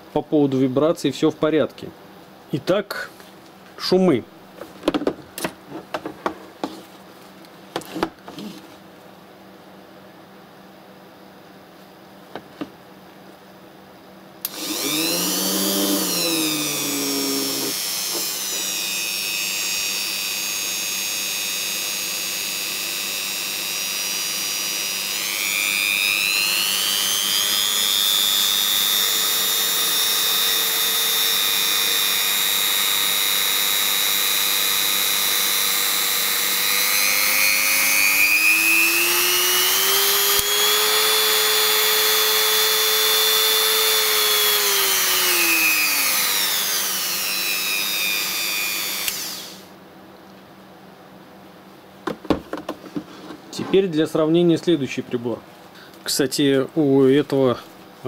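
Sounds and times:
rotary tool motor whine: 14.4 - 49.7.

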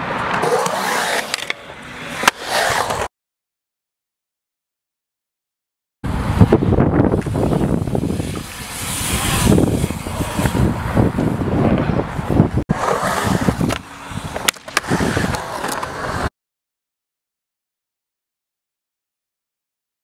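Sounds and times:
wheels rolling on concrete: 0.2 - 3.1, 6.1 - 16.3.

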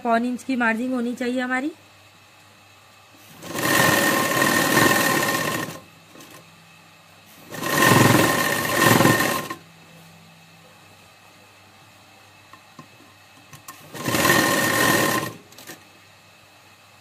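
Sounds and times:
sewing machine stitching: 3.3 - 6.4, 7.4 - 9.6, 13.7 - 15.8.

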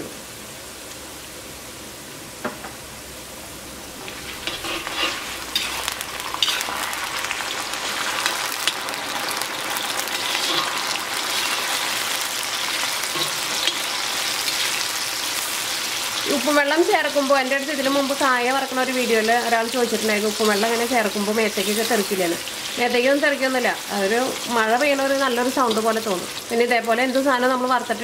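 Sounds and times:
potatoes deep-frying in oil: 2.8 - 28.0
slotted spoon stirring: 4.0 - 7.0, 9.8 - 11.9, 12.5 - 14.2.

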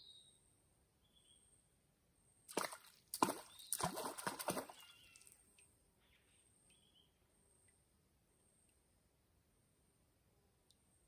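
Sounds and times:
water splashing: 2.5 - 5.4
faint bird calls: 4.5 - 7.7.

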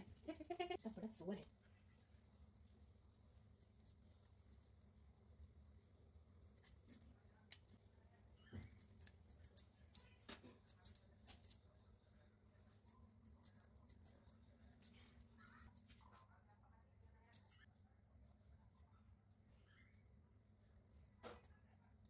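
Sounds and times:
bangles clinking: 3.4 - 7.8, 8.4 - 11.7, 12.6 - 15.8, 17.3 - 17.7.

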